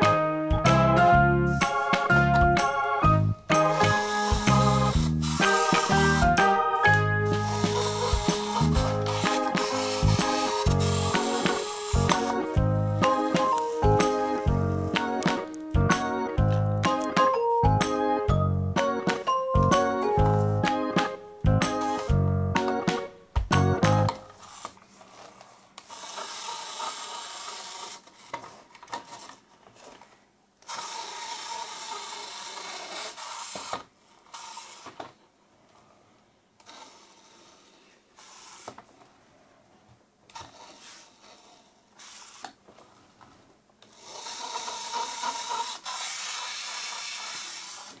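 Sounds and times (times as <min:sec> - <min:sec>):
plastic toy wheels rolling: 0:03.5 - 0:15.7, 0:23.8 - 0:35.9, 0:36.6 - 0:39.1, 0:40.3 - 0:48.0.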